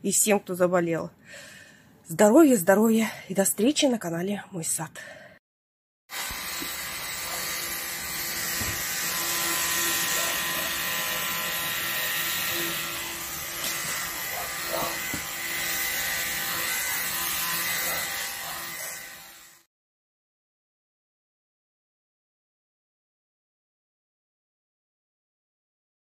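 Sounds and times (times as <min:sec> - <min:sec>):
electric sprayer motor whining: 0:06.1 - 0:19.7.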